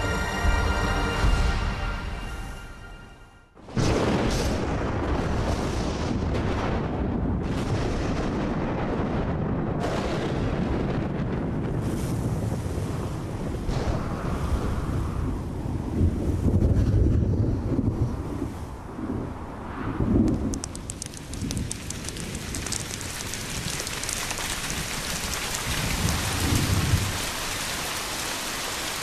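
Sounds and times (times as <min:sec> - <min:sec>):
wind: 0:00.0 - 0:29.0
thunder: 0:03.6 - 0:27.4.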